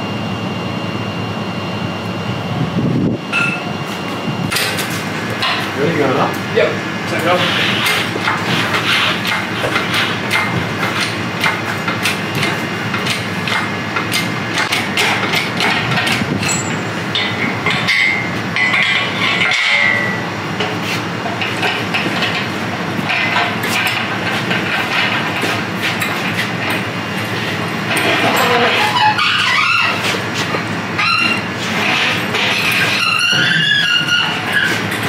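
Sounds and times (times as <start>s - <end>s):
metallic clanks of crane chain: 15.6s - 20.3s
short high squeak: 31.0s - 31.5s.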